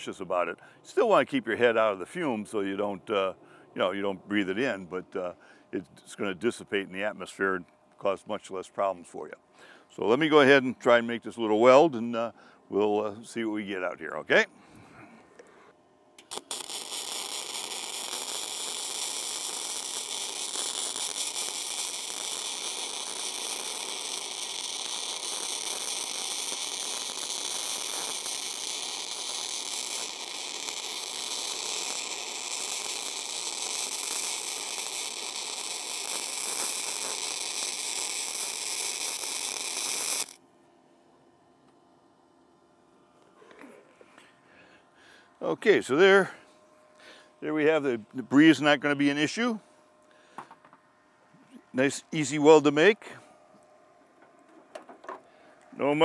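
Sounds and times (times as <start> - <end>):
arc welding crackling hiss: 16.2 - 40.4.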